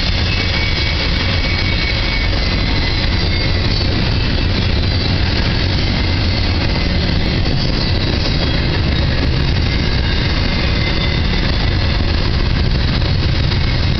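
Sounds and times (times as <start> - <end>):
freight train rolling past: 0.0 - 13.9.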